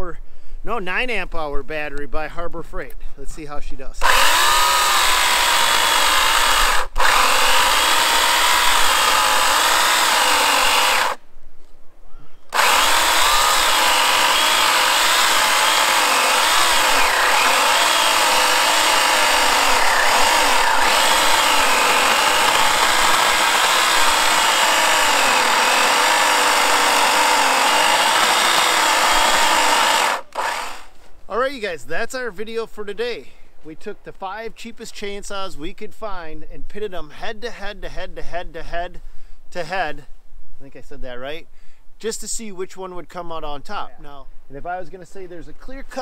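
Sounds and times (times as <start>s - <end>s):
electric chainsaw cutting wood: 4.0s - 11.2s, 12.5s - 31.0s.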